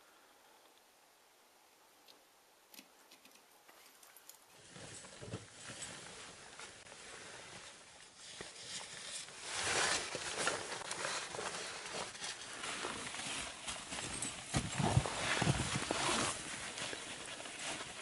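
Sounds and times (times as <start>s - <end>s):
rustle and scrape: 3.1s - 18.0s
crampons scraping on rock and snow: 8.8s - 18.0s.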